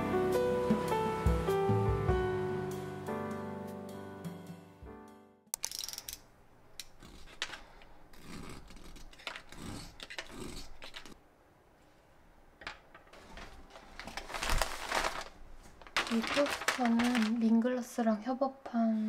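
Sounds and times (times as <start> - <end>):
knife cutting paper package: 6.9 - 11.2, 13.2 - 17.4
paper crinkling: 12.6 - 17.7
wrapping paper rustling: 12.9 - 17.9.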